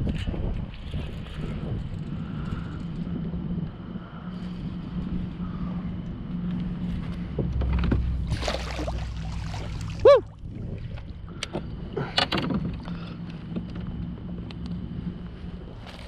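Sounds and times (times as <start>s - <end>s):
steady low hum: 0.0s - 16.0s
water splashing against kayak: 7.9s - 13.5s.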